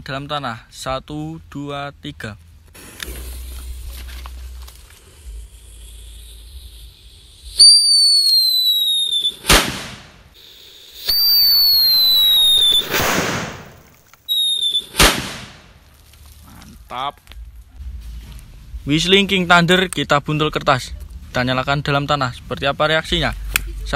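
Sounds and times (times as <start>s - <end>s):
firecracker whistle: 5.0s - 15.2s
firecracker bang: 7.4s - 10.4s, 11.0s - 15.8s.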